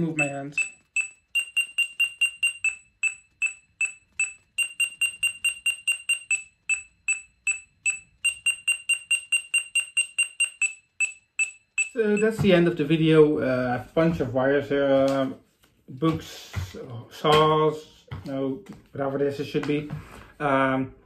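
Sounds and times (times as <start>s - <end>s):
parking sensor high-pitched beeps: 0.0s - 12.4s.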